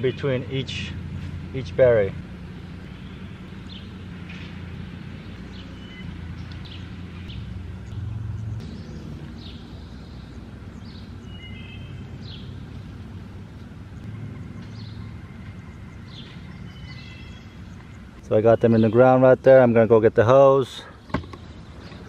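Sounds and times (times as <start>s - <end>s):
birds chirping: 0.0s - 22.0s
steady low rumble: 0.9s - 18.3s
whistled bird notes: 5.5s - 7.5s, 8.6s - 12.6s, 14.0s - 19.0s.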